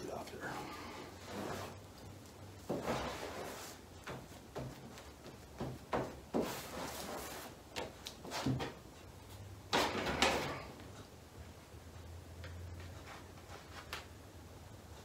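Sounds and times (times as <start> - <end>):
plastic spreader scraping filler: 0.5 - 1.8, 2.6 - 3.8.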